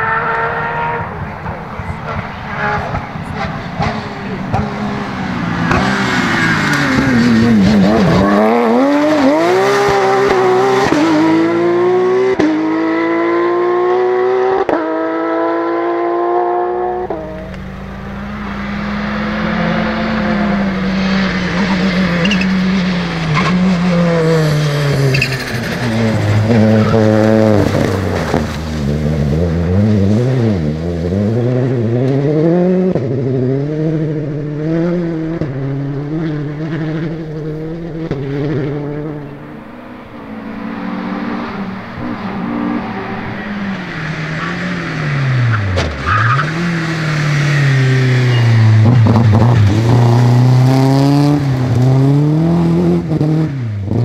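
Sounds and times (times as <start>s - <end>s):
rally car accelerating through upshifts: 0.0s - 54.0s
rally car engine on gravel: 16.8s - 54.0s.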